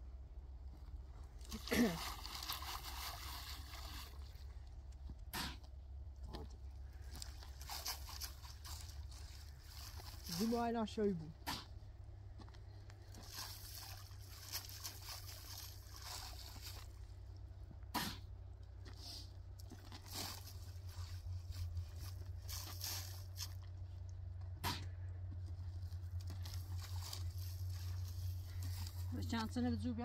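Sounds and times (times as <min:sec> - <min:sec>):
shovel scraping sand and gravel: 0:05.3 - 0:05.6, 0:07.4 - 0:10.7, 0:11.4 - 0:11.8, 0:17.9 - 0:18.3, 0:20.0 - 0:23.6.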